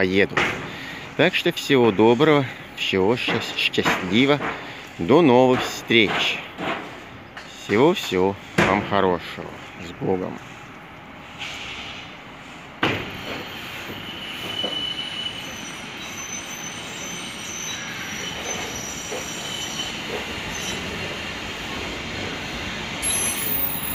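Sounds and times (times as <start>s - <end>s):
train rumble on track: 0.0s - 23.9s
rail wheels squealing: 13.0s - 23.9s.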